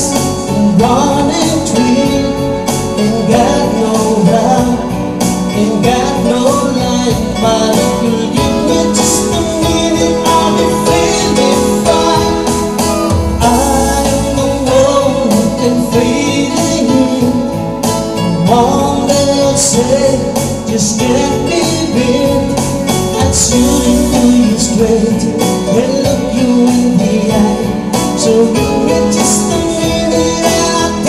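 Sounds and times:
electronic keyboard: 0.0 - 31.0
man singing into microphone: 0.0 - 31.0
steady beat: 7.1 - 24.7.

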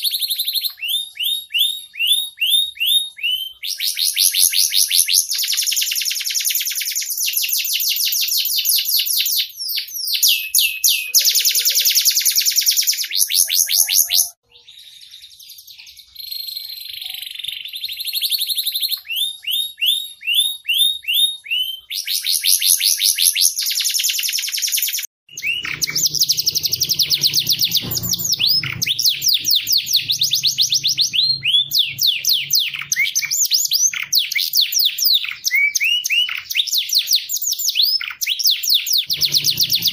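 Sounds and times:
canaries singing in rapid trills: 25.3 - 36.6, 38.0 - 39.9
faint low hum: 25.4 - 34.0.

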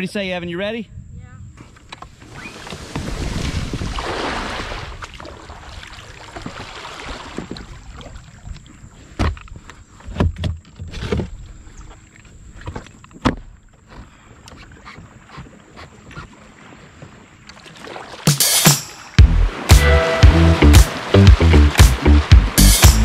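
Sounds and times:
paddle splashes: 2.1 - 23.0
rushing river water: 2.7 - 8.4, 16.4 - 23.0.

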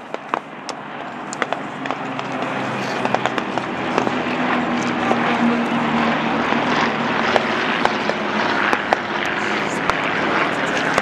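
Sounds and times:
sharp cracks: 0.0 - 4.2
propeller aircraft engines droning: 0.0 - 11.0.

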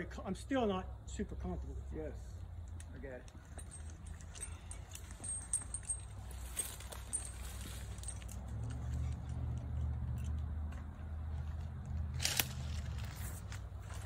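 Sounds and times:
low engine-like hum: 0.0 - 14.0.

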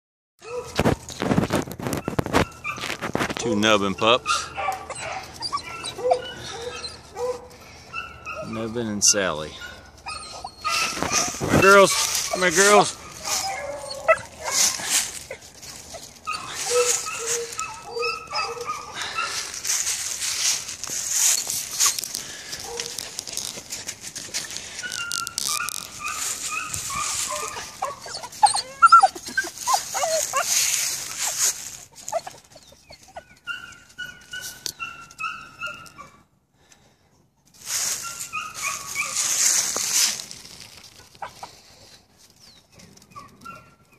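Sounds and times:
puppies whining and yipping: 0.4 - 36.3, 37.7 - 43.9
scratchy rustling: 0.6 - 3.8, 9.6 - 32.6, 37.6 - 42.4.

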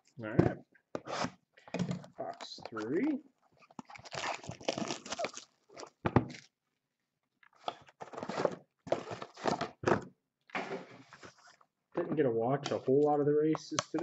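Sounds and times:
plastic shrink wrap crinkling: 3.6 - 6.0.

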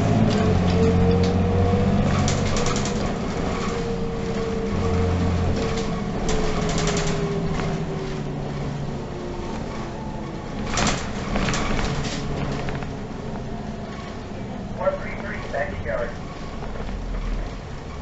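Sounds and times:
bus engine hum with whine: 0.0 - 18.0.

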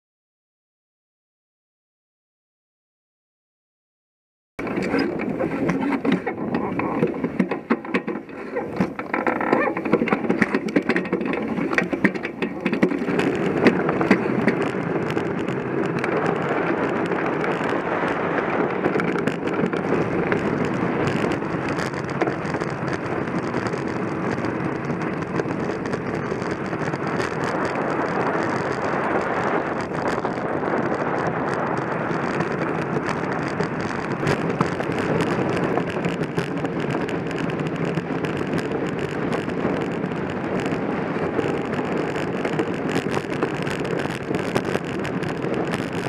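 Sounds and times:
sharp knocks and rattles: 4.6 - 40.8
skate runners scraping over ice: 4.6 - 46.0.

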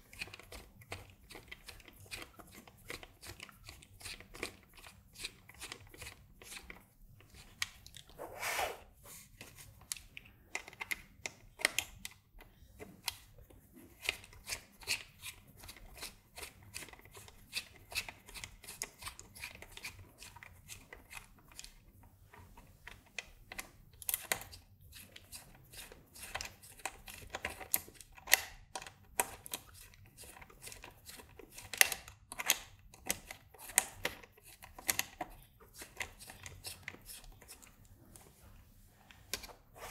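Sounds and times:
screwdriver clicking and scraping in screws: 23.1 - 37.7.

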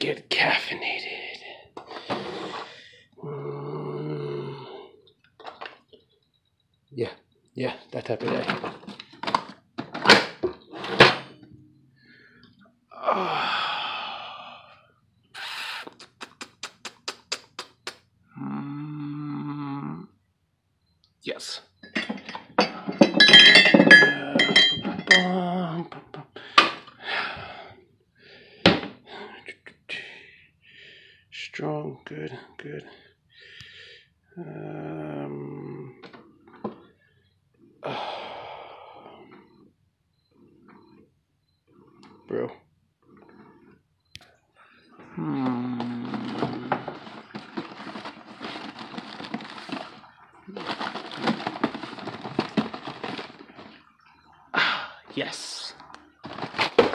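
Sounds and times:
ceramic mugs clinking: 21.8 - 25.4
cardboard boxes crackling: 45.8 - 53.9, 56.2 - 56.9.

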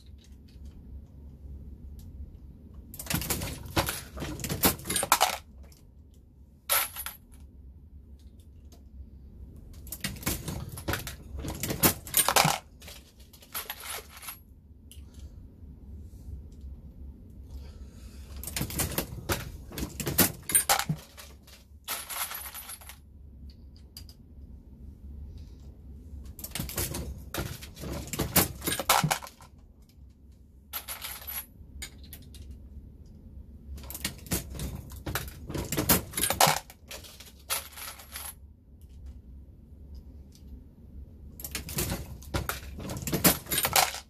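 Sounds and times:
cartridges dropping into bin: 3.0 - 5.4, 9.8 - 14.4, 18.4 - 23.0, 26.4 - 29.4, 33.8 - 38.4, 41.4 - 44.0.

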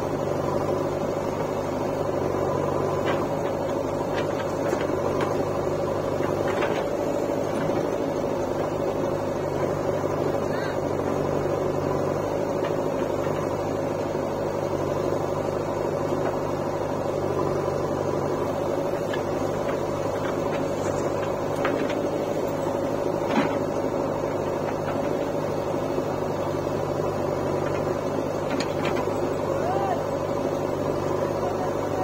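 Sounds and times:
diesel engines droning: 0.0 - 32.0.

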